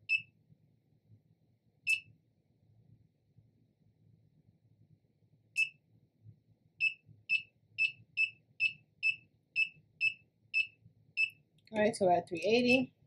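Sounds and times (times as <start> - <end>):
control panel beeping: 12.4 - 12.9.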